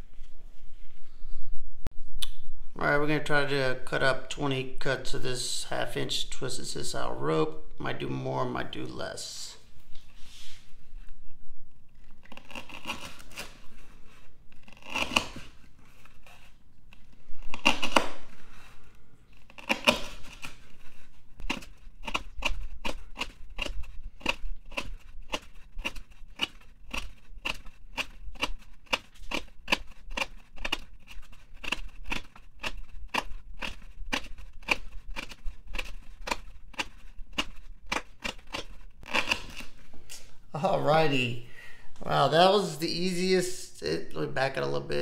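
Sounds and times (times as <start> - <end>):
knife cutting rope: 12.0 - 18.6, 19.3 - 40.2.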